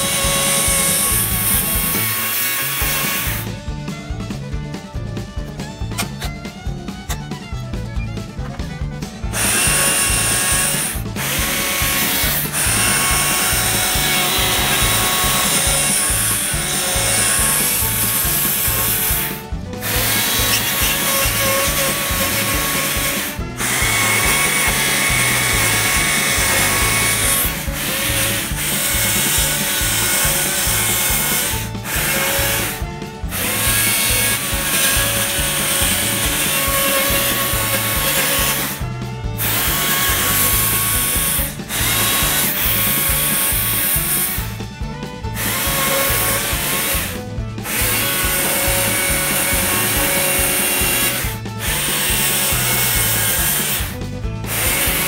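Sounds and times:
background music with steady beat: 0.0 - 55.0
chainsaw cutting log: 0.0 - 55.0.

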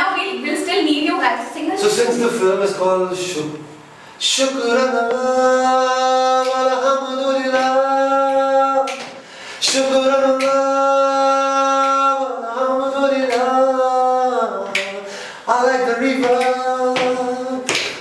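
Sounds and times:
singer breathing: 3.9 - 4.2, 9.2 - 9.7, 15.0 - 15.5
man singing unaccompanied: 4.2 - 18.0.

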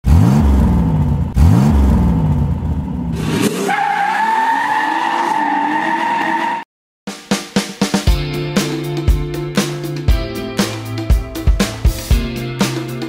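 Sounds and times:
car engine revving: 0.0 - 6.6.

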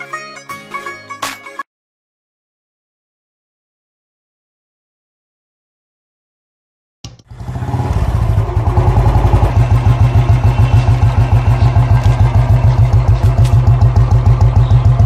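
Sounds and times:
motorcycle engine idling: 7.3 - 15.0.

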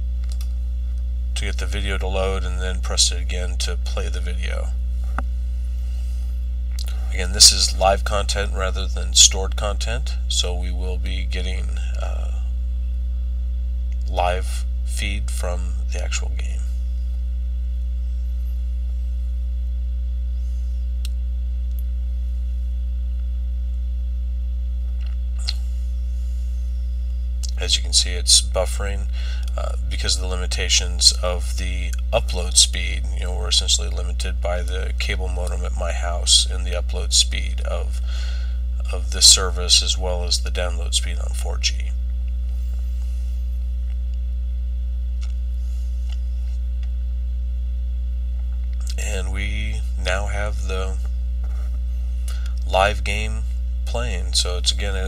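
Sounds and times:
electrical mains hum: 0.0 - 55.0
faint clicks: 0.2 - 1.0.

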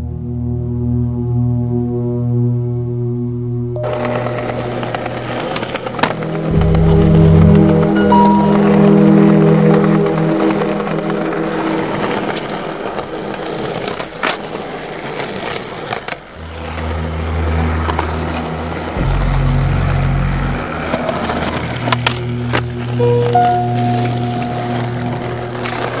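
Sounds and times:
skateboard clacking on ground: 3.8 - 16.8
skateboard wheels rolling on concrete: 3.8 - 26.0
music with held bass notes: 6.5 - 9.8, 17.4 - 25.9.

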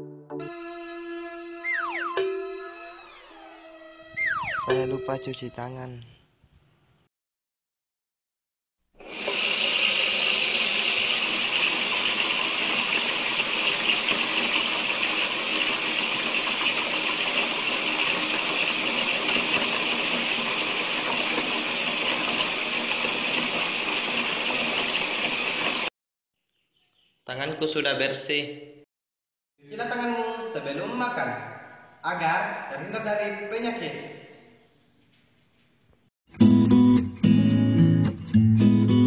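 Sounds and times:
tap water running: 9.0 - 25.9.

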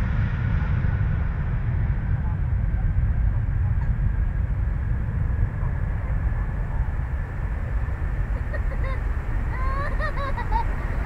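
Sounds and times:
jet engines roaring at takeoff: 0.0 - 11.0.

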